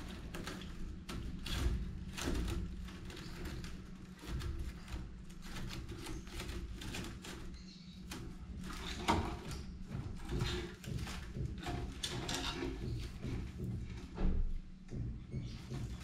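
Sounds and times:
rattan basket creaking and rustling: 0.0 - 16.0
basket frame knocking: 8.3 - 16.0.

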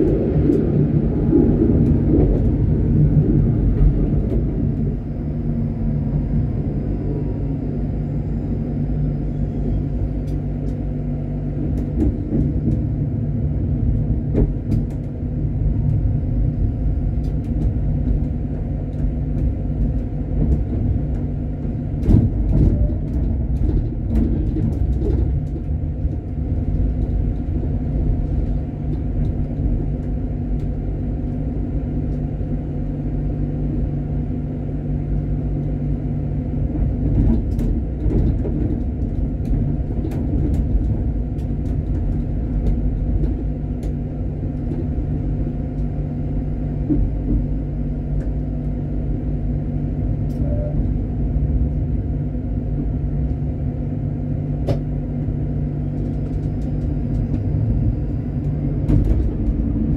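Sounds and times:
tram rumble: 0.0 - 59.9.

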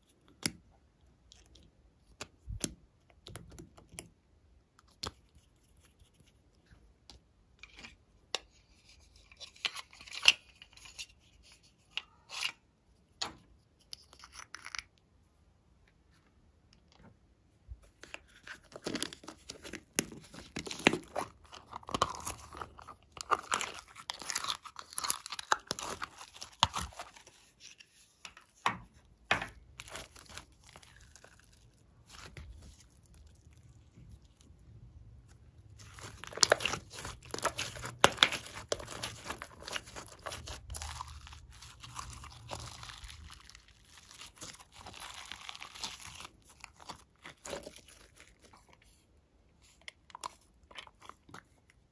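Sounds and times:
slime crackling and popping: 18.8 - 27.2, 35.7 - 48.4.

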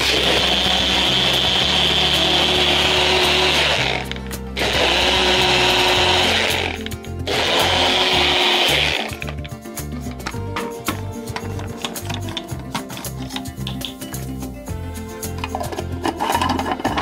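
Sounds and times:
blender motor whirring: 0.0 - 9.3.

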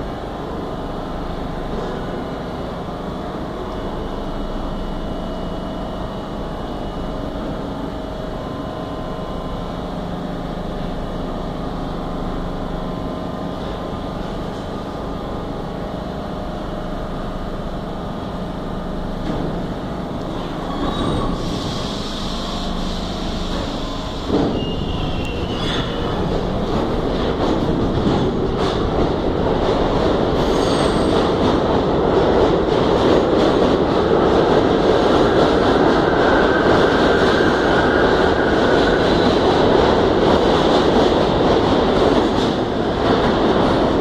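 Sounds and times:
subway train motors howling: 0.0 - 44.0
train cars rattling: 19.3 - 44.0
wheels squealing: 24.5 - 26.3.

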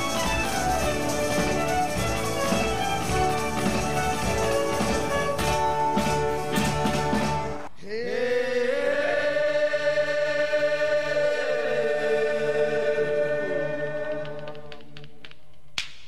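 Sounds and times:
live band music with drums: 0.0 - 7.7
group of voices chanting: 7.8 - 14.4.

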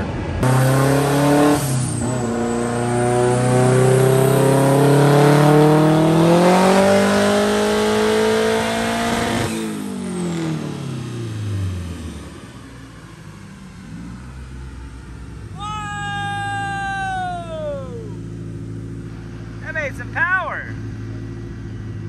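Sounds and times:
race car engine revving: 0.0 - 12.7.

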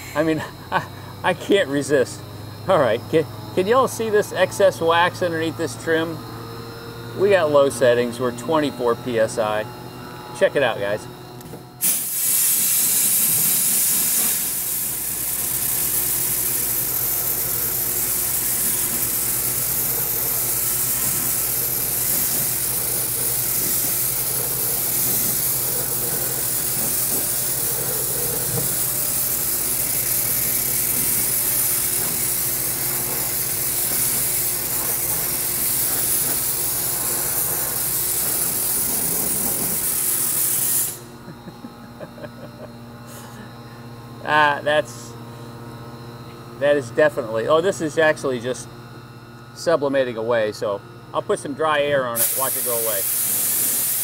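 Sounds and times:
dry ice blasting gun hissing: 11.8 - 41.2, 52.1 - 54.0.

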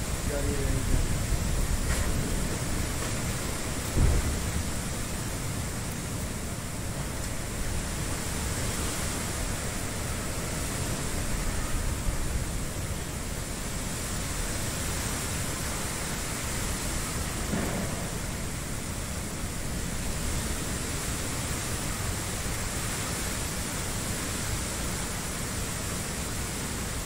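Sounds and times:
wind rumbling on microphone: 0.0 - 25.1
wind rushing through trees: 0.0 - 27.0.

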